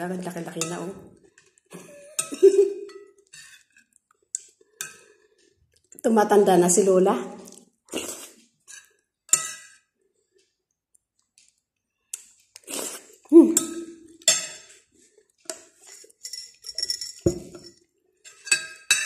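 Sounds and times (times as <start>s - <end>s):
metal spoon clinking on plate: 8.7s - 9.8s, 13.6s - 14.7s, 16.2s - 19.0s.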